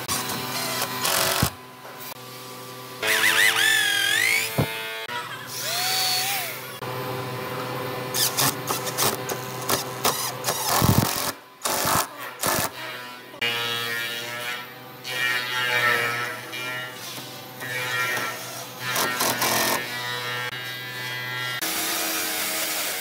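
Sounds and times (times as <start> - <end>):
power drill boring into wood: 5.6 - 6.6.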